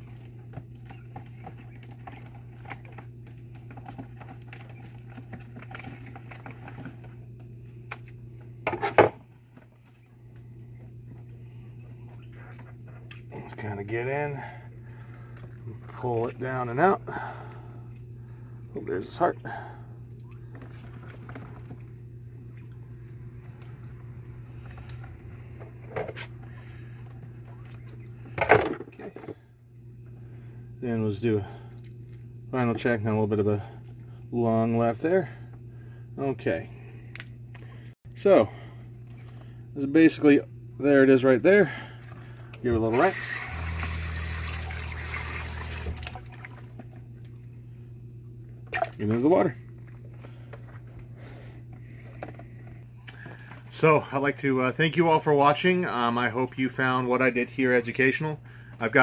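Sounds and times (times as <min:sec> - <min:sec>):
steady low hum: 0:00.0 - 0:59.0
wet squishing: 0:33.6 - 0:34.4.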